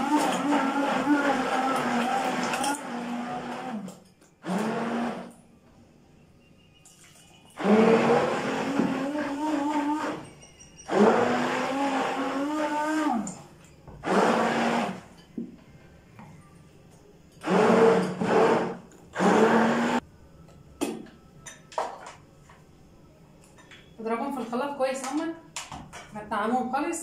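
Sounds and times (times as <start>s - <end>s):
stick blender motor: 0.0s - 5.4s, 7.6s - 10.2s, 10.9s - 13.4s, 14.0s - 15.0s, 17.4s - 20.0s.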